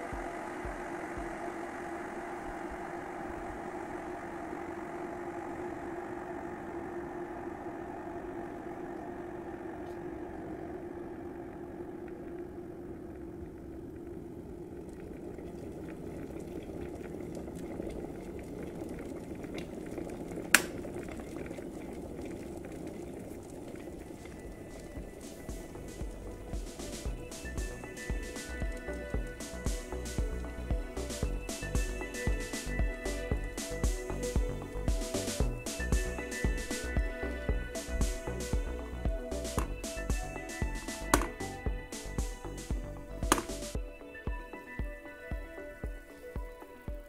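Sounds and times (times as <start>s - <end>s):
electric kettle boiling: 0.0s - 47.0s
kettle switch click: 20.6s - 20.8s, 43.3s - 43.6s.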